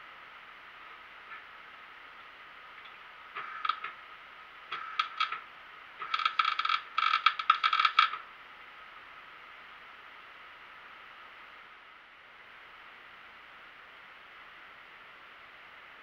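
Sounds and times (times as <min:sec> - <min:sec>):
welder arc crackling: 0:04.7 - 0:05.4, 0:06.0 - 0:08.2.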